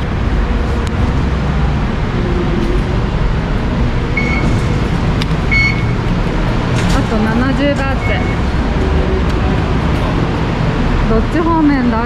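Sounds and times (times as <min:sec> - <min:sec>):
rumble of passing vehicles: 0:00.0 - 0:12.0
short high beep: 0:04.2 - 0:04.6, 0:05.5 - 0:06.0.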